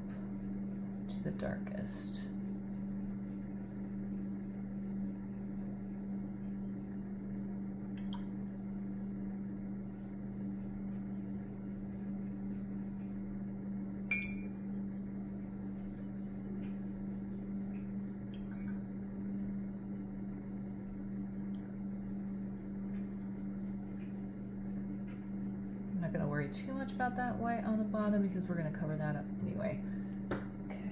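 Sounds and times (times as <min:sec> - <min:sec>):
steady low hum: 0:00.0 - 0:30.9
sharp clink: 0:14.1 - 0:14.5.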